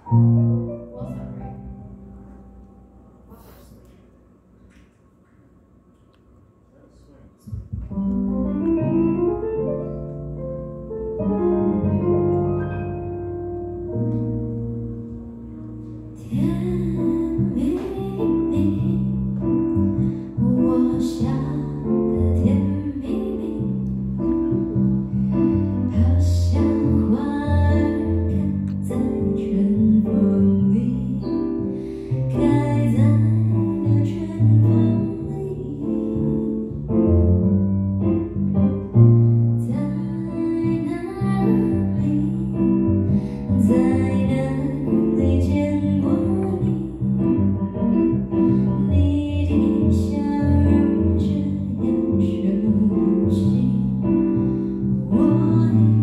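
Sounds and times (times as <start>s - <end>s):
keyboard playing piano chords: 7.9s - 56.0s
woman singing into microphone: 16.2s - 19.2s, 25.9s - 31.4s.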